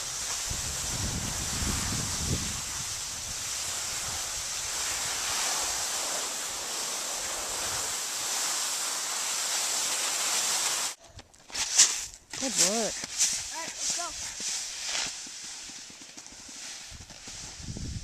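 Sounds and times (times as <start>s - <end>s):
wind on microphone: 0.0s - 6.6s, 16.9s - 18.0s
skis sliding on snow: 0.0s - 18.0s.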